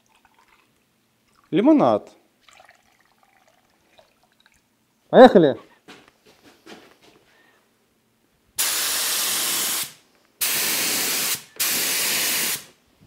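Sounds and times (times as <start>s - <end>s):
spray gun hissing bursts: 8.6s - 12.8s.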